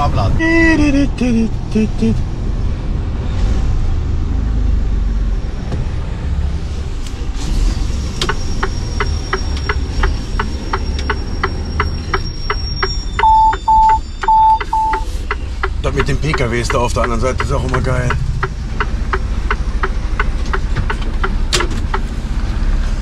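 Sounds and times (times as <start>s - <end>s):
diesel engine rumble: 0.0s - 23.0s
turn indicator ticking: 8.2s - 22.2s
short high warning beeps: 10.8s - 15.1s.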